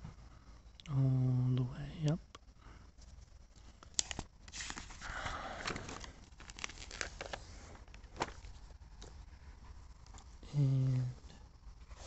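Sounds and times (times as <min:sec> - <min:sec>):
paper pages rustling: 0:03.0 - 0:09.2.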